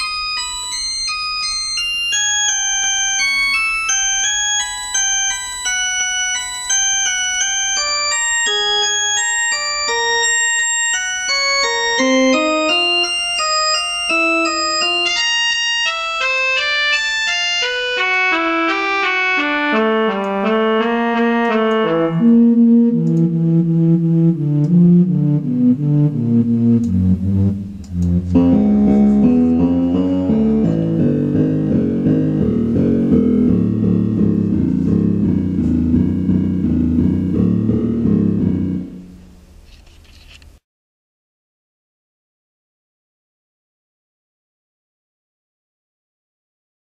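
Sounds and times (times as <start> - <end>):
synthesized melody of short notes: 8.5 - 39.4.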